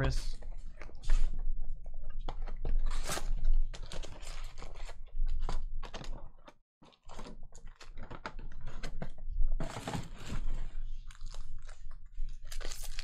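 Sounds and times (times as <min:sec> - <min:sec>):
foil packs crinkling and rustling: 0:02.4 - 0:06.3, 0:06.9 - 0:08.8, 0:09.6 - 0:13.0.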